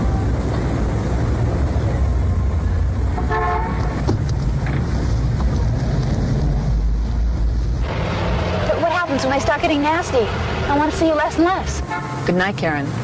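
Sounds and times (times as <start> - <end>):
car engine: 0.0 - 11.9
street traffic rumble: 0.0 - 13.0
car horn toot: 3.2 - 4.0.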